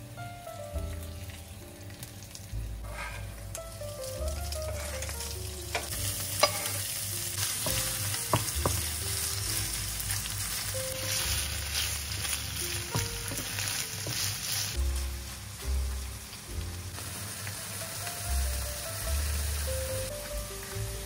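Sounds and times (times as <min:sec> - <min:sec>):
fish frying in oil: 0:00.7 - 0:21.0
spatula knocking against pan: 0:07.6 - 0:08.9.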